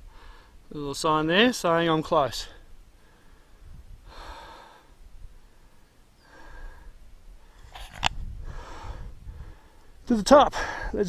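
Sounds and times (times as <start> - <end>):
person breathing hard: 0.0 - 0.6, 3.0 - 7.8, 8.4 - 10.0.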